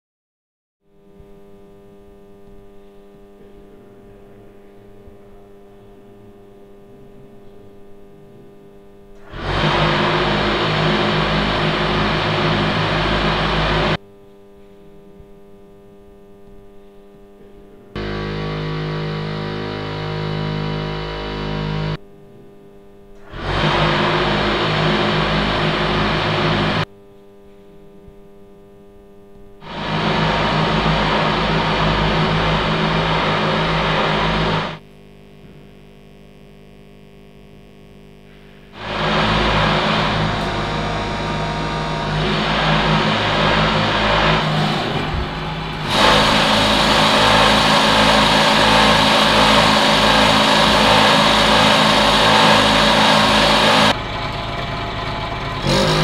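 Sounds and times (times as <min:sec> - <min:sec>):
steady low hum: 0:01.0 - 0:56.0
loud mechanical buzz: 0:08.5 - 0:14.0, 0:17.9 - 0:26.9, 0:29.6 - 0:56.0.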